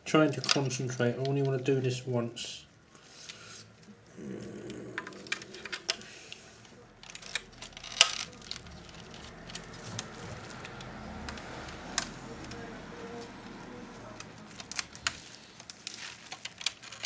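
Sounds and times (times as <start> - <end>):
wires rustling: 0.1 - 17.0
plastic parts clicking: 4.9 - 17.0.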